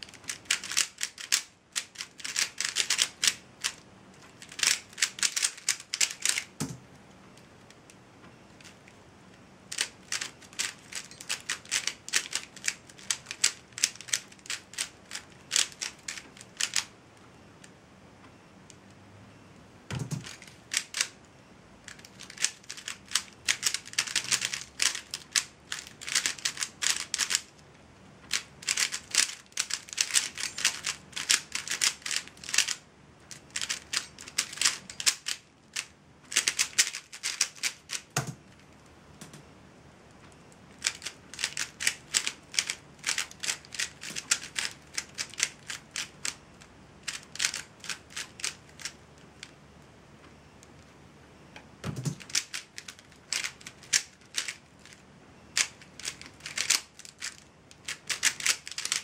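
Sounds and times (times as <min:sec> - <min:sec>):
puzzle cube layers clicking: 0:00.2 - 0:06.6, 0:09.7 - 0:16.9, 0:21.9 - 0:27.5, 0:28.3 - 0:35.4, 0:36.3 - 0:38.3, 0:55.6 - 0:59.0.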